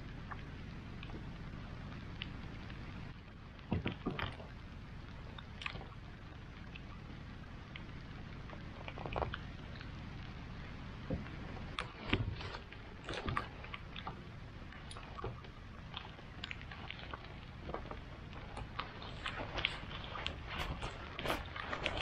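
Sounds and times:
rain falling on water: 0.0 - 22.0
rain jacket rustling: 18.9 - 22.0.

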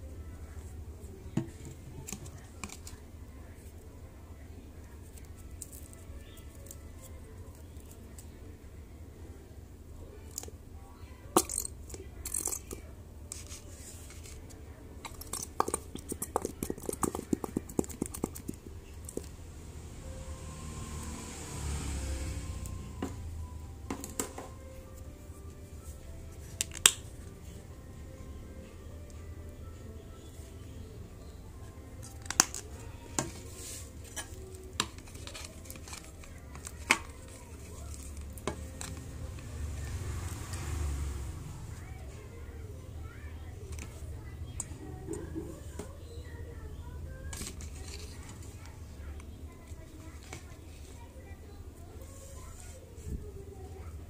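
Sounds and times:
squeeze bottle squirting liquid: 15.1 - 18.8.

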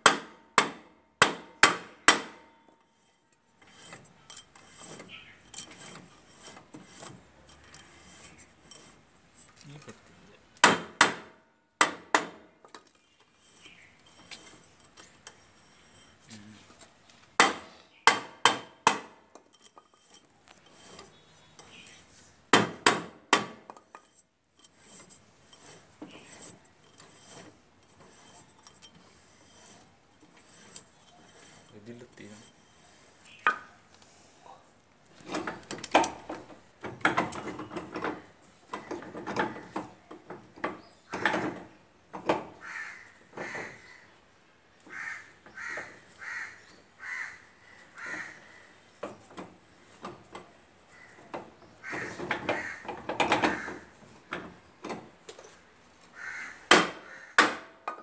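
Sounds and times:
metal clinking and rubbing: 2.7 - 10.1, 12.8 - 17.1, 19.3 - 22.5, 23.7 - 34.0.

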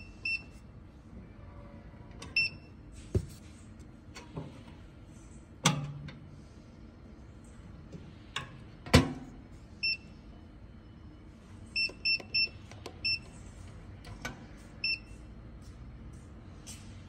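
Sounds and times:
keypad beeps: 0.0 - 0.5, 2.3 - 2.7, 11.8 - 13.4, 14.8 - 15.2.

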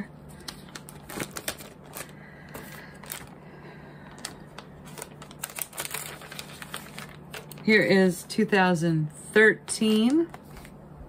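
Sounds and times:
plastic sheets rustling and crinkling: 0.3 - 3.4, 4.0 - 8.2, 9.8 - 10.8.

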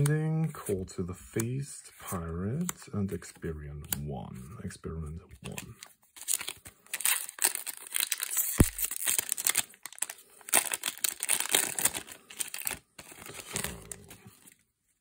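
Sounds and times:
foil wrapper tearing and crinkling: 6.2 - 14.0.

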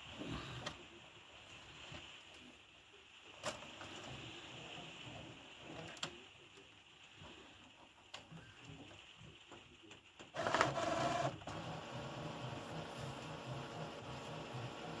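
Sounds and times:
printer motor whir: 10.3 - 15.0
printer pulsing mechanism: 10.3 - 15.0.

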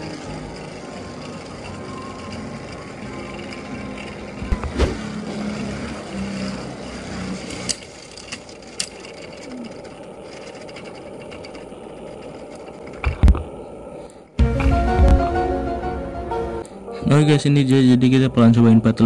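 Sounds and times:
spinning top whirring and rattling: 0.0 - 14.8
loud thumps: 4.5 - 5.1, 14.4 - 15.6.

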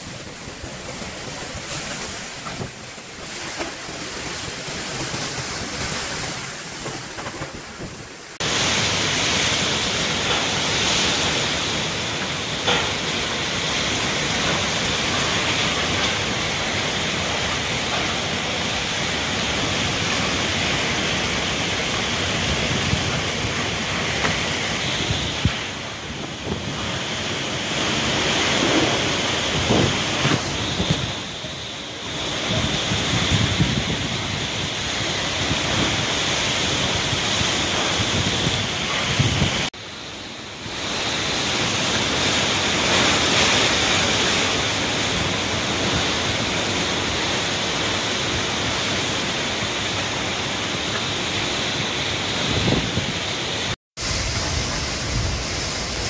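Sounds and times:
rain: 0.0 - 56.0
storm wind gusting through trees: 0.0 - 56.0
wind buffeting microphone: 18.9 - 31.5, 32.2 - 39.7, 52.4 - 53.4.

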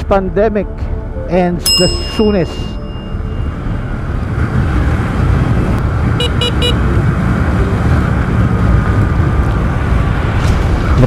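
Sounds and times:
motorcycle horn beeps: 6.2 - 6.8.

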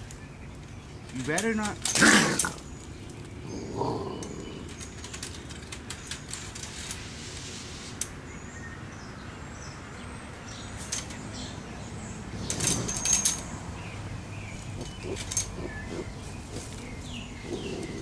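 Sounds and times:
birds chirping faintly: 0.0 - 18.0
animal rustling in wire trap: 12.3 - 13.6.

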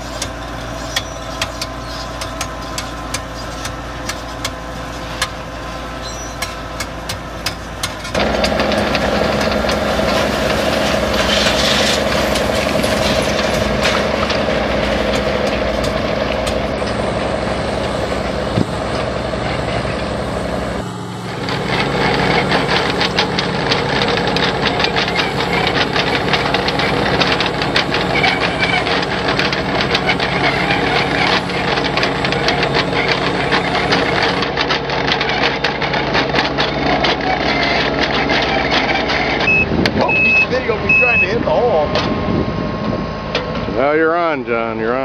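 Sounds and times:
tracked machine engines running: 0.0 - 45.0
dense rattling clatter: 6.5 - 40.8.

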